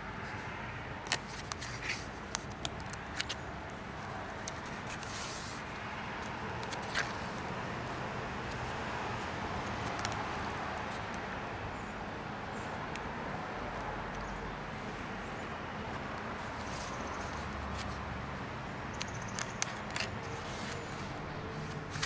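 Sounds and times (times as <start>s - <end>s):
stiff paper rustling: 1.1s - 7.4s, 19.4s - 22.0s.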